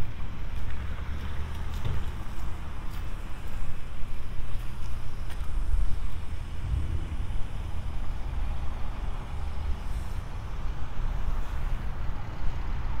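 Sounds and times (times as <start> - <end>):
traffic on wet street: 0.0 - 13.0
wind buffeting microphone: 3.8 - 13.0.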